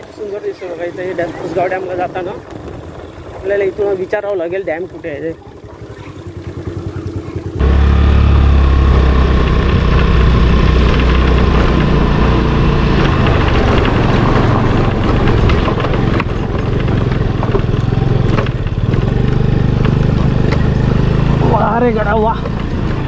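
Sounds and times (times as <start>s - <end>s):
motor scooter engine running: 0.0s - 23.0s
knocks and rattles from bumps: 12.9s - 21.1s.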